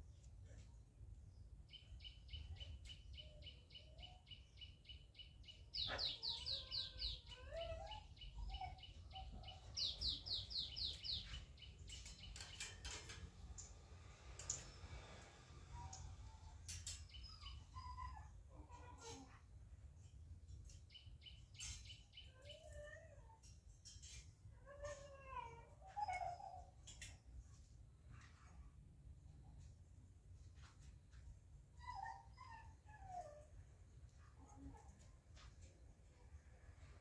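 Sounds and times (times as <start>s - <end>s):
small bird chirping: 1.7s - 13.0s.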